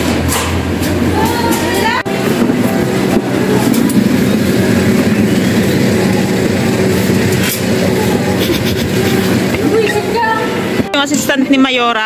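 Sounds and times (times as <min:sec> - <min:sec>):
machine humming: 0:01.9 - 0:11.5.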